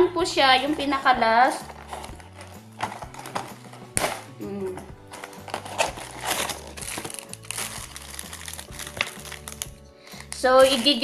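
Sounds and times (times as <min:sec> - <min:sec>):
background music: 0:00.0 - 0:11.0
plastic packaging crinkling: 0:01.6 - 0:04.3, 0:05.0 - 0:11.0.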